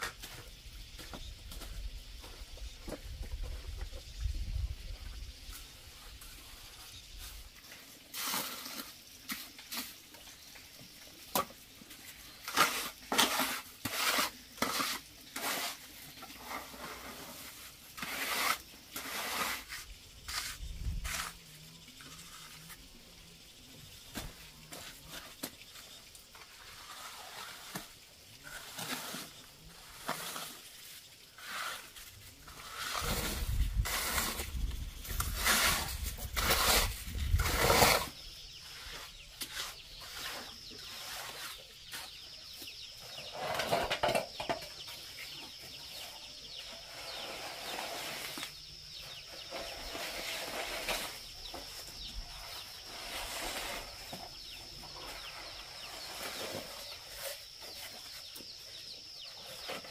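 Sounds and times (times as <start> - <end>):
trowel scraping wet concrete: 8.1 - 10.0, 11.3 - 22.9, 24.1 - 42.2, 46.8 - 48.5, 49.2 - 51.6, 52.4 - 54.2.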